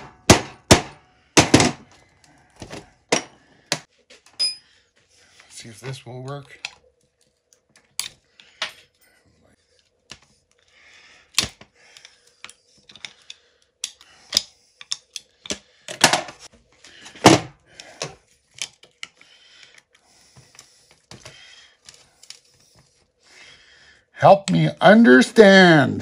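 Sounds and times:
hand tools clicking and scraping metal: 7.5s - 22.9s.

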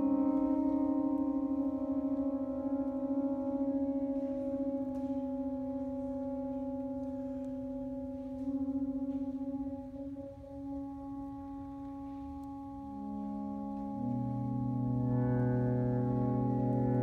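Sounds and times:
saxophones holding a chord: 0.0s - 17.0s.

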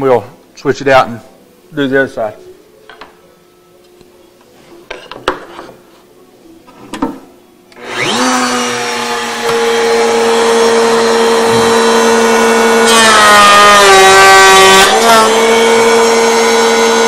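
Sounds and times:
router motor whine: 7.8s - 17.0s.

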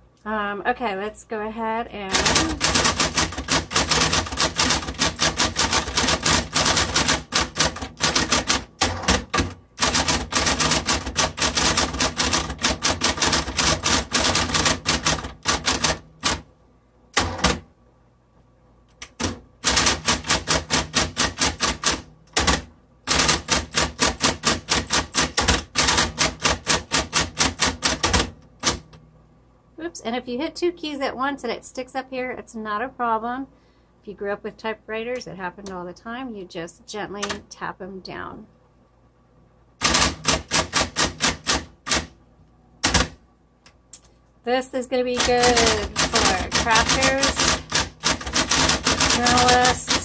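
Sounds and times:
typewriter motor humming: 2.1s - 16.5s, 17.2s - 17.6s, 19.0s - 29.0s, 39.8s - 42.1s, 45.0s - 50.0s.

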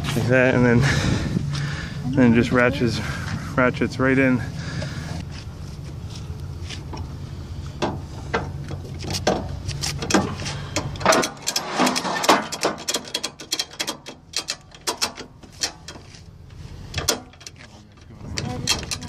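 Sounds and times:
ratchet clicking: 9.1s - 16.1s.

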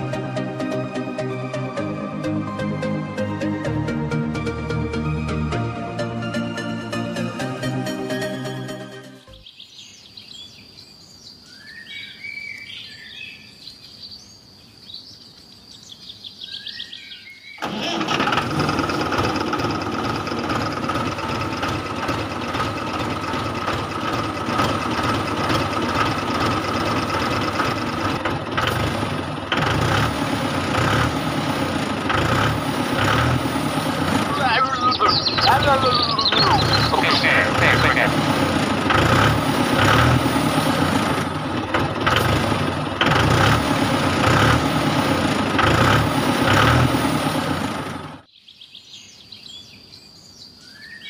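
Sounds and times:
faint bird chirps: 9.3s - 17.6s, 34.4s - 37.2s.

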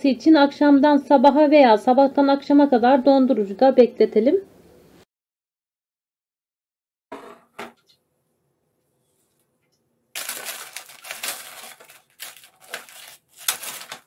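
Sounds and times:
baking paper crinkling: 10.2s - 14.0s.

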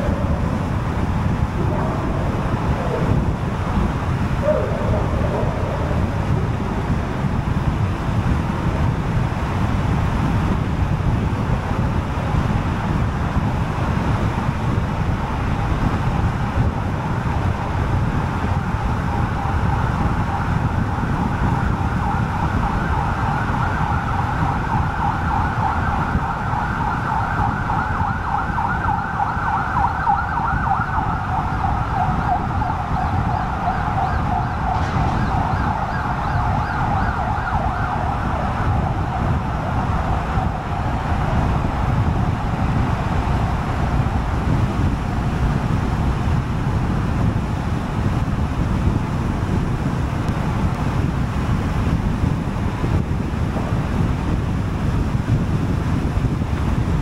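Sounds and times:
warbling emergency siren: 0.0s - 9.4s, 15.2s - 47.2s
car road and tyre rumble: 0.0s - 57.0s.

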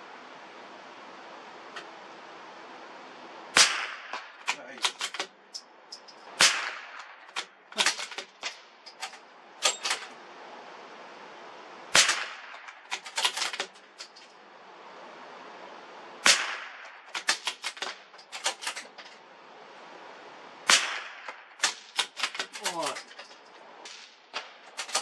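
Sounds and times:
rifle shots echoing: 3.5s - 5.4s, 6.4s - 8.8s, 11.9s - 13.8s, 16.2s - 19.0s, 20.6s - 23.0s.

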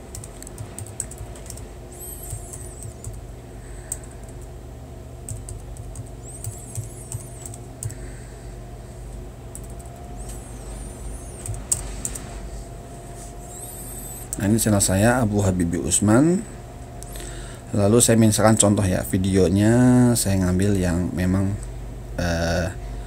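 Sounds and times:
low background hum: 0.0s - 23.0s
faint high warbling chirps: 1.9s - 3.0s, 6.2s - 7.6s, 10.0s - 11.7s, 13.4s - 14.4s.

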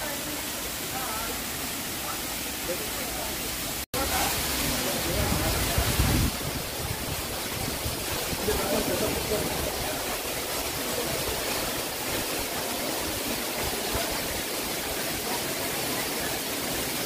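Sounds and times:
waterfall rushing water: 0.0s - 17.0s.

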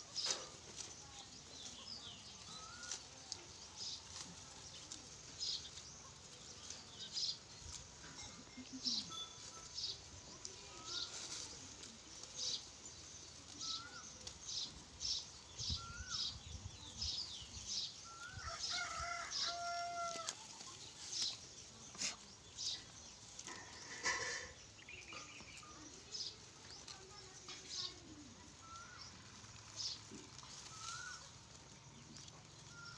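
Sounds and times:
goats chewing dry fodder: 0.0s - 15.6s, 16.8s - 32.9s.

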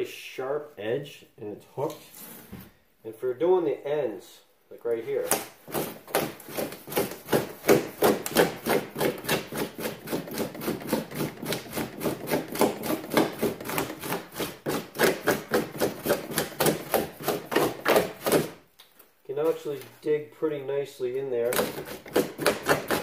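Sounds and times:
metal scoop scraping foam: 21.1s - 23.0s.

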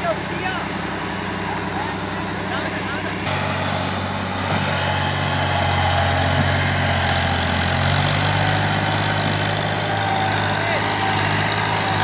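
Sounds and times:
tractor diesel engine running hard: 0.0s - 12.0s.

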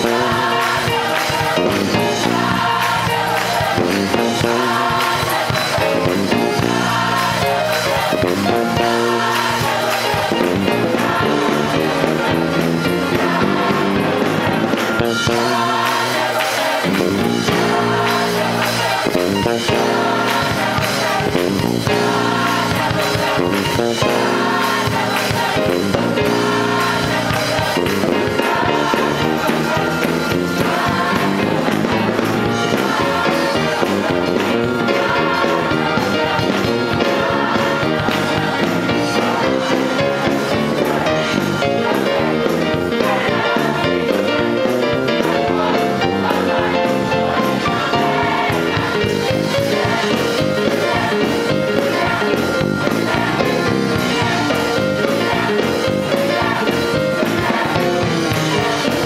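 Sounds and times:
gospel choir singing: 0.0s - 59.0s
instrumental accompaniment: 0.0s - 59.0s.

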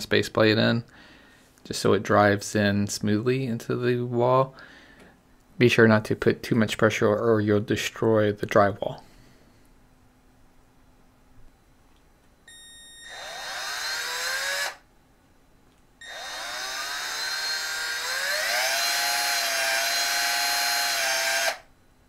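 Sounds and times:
cordless drill motor whine: 12.5s - 14.9s, 16.0s - 21.7s.

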